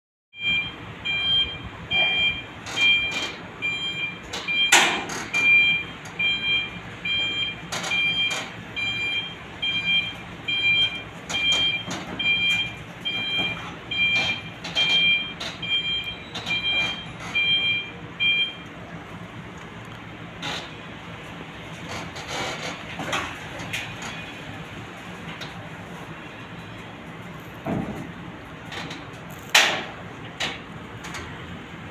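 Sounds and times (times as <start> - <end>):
forklift reversing alarm beeping: 0.4 - 18.7.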